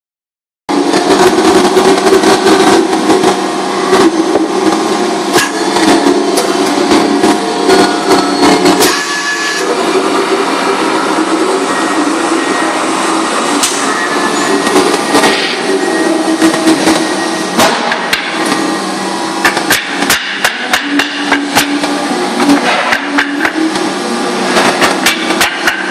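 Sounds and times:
machinery hum: 0:00.7 - 0:25.9
machinery knocks and clatters: 0:24.5 - 0:25.9.

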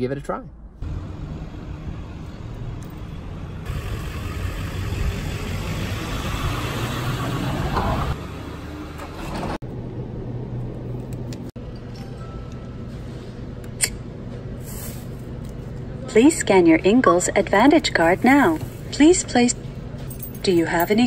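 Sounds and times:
road traffic rumble: 0:00.8 - 0:11.7.

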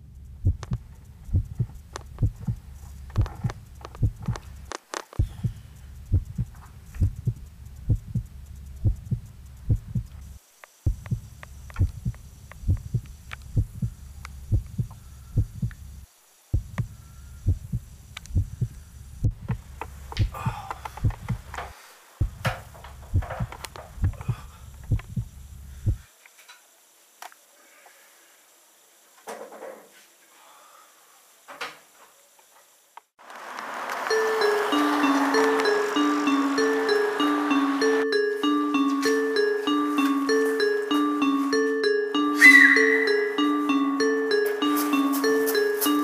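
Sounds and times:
steady low hum: 0:00.0 - 0:26.1
regular sharp thumps: 0:00.2 - 0:10.3, 0:10.9 - 0:13.9, 0:16.6 - 0:16.9, 0:22.2 - 0:26.0.

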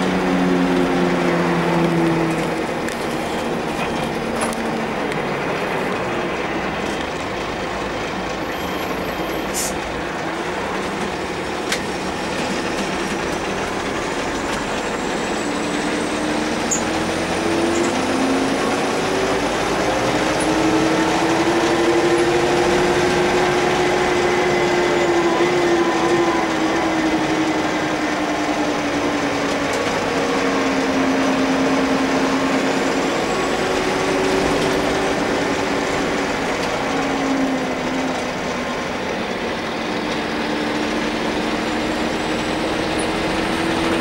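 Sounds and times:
bus diesel engine: 0:00.0 - 0:44.0.

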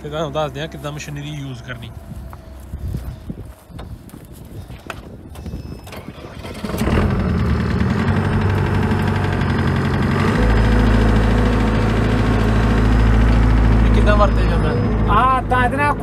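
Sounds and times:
diesel engine running: 0:00.0 - 0:02.7, 0:06.0 - 0:16.0.

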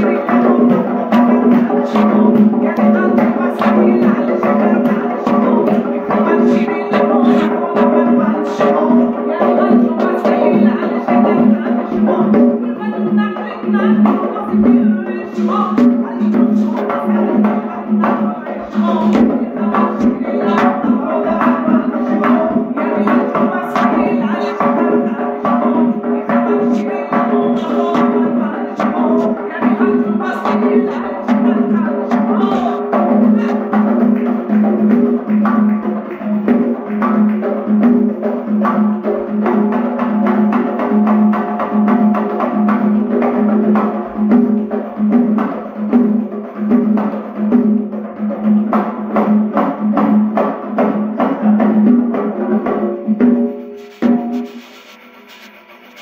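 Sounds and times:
person singing: 0:00.0 - 0:43.9
frame drums beating fast rhythm: 0:00.0 - 0:56.0.

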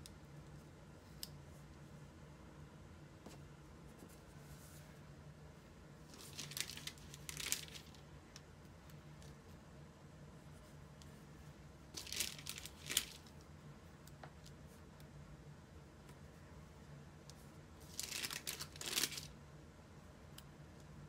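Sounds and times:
low steady hum: 0:00.0 - 0:21.0
sticker sheet crinkling: 0:06.1 - 0:08.0, 0:12.0 - 0:13.4, 0:17.8 - 0:19.3.

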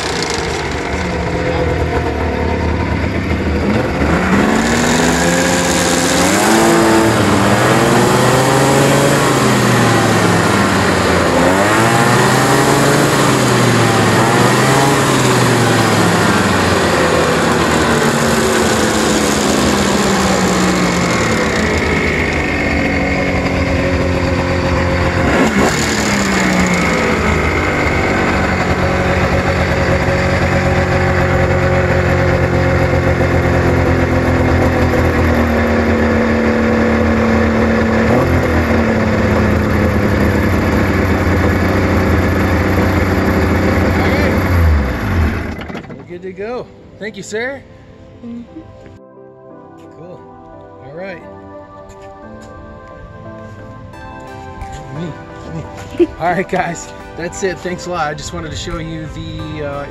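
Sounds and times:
snowmobile engine revving: 0:00.0 - 0:46.0.

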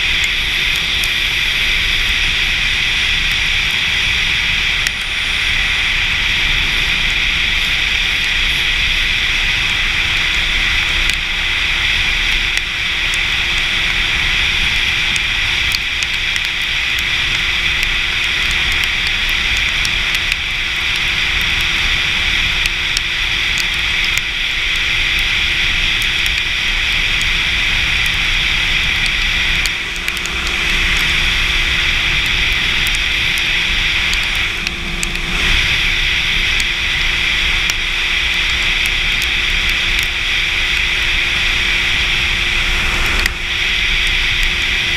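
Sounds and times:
faint motorcycle engine drone: 0:00.0 - 0:44.9
road noise on wet road: 0:00.0 - 0:44.9
light ticks: 0:15.1 - 0:21.7, 0:37.6 - 0:40.1.

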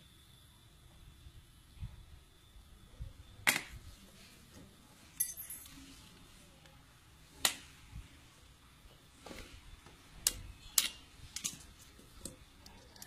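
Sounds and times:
ringing metal clink: 0:05.2 - 0:05.7.

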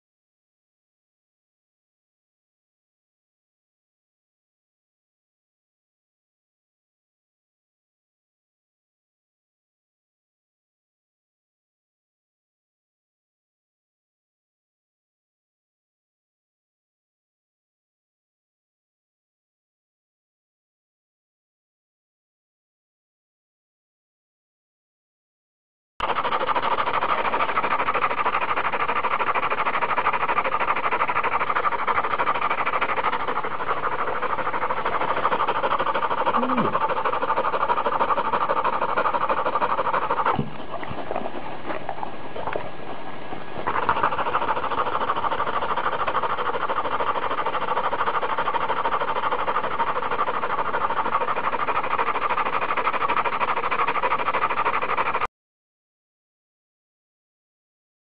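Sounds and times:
dog panting heavily: 0:26.0 - 0:55.3.

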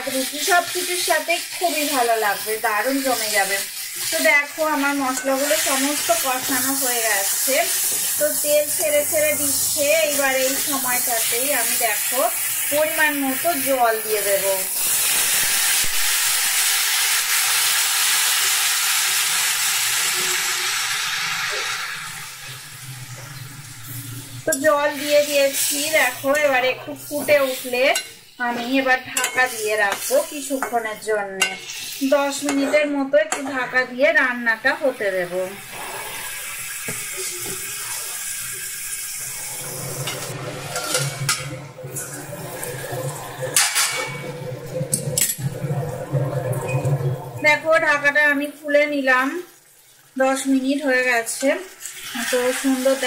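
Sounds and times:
water sizzling in hot oil: 0:00.0 - 0:53.0
curry bubbling: 0:34.7 - 0:48.1.

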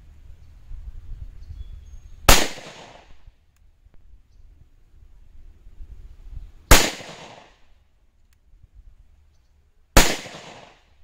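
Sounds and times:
pistol shot: 0:02.3 - 0:03.2, 0:06.7 - 0:07.6, 0:10.0 - 0:10.8.

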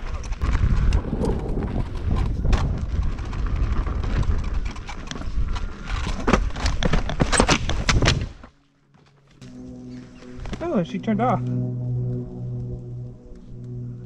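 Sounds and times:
wind rumbling on microphone: 0:00.0 - 0:08.4.

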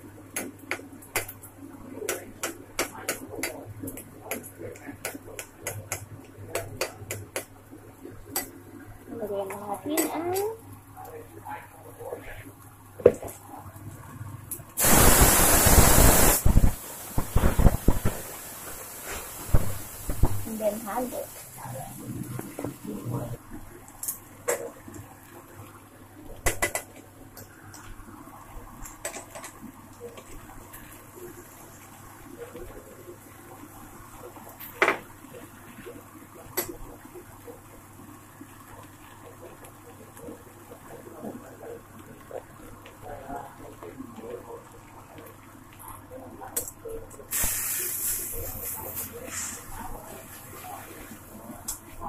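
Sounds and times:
greens sizzling in hot oil: 0:14.8 - 0:22.8, 0:47.3 - 0:52.0
oil crackling and spattering: 0:14.8 - 0:23.1.

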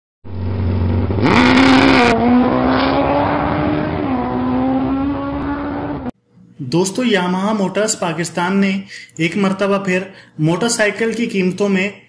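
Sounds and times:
motorcycle engine revving: 0:00.3 - 0:06.1.

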